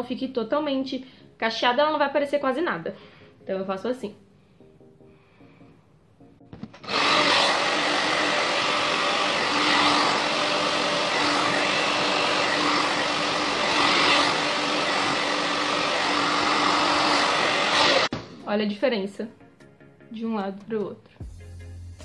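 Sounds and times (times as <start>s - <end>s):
hair dryer blowing air: 6.6s - 18.1s.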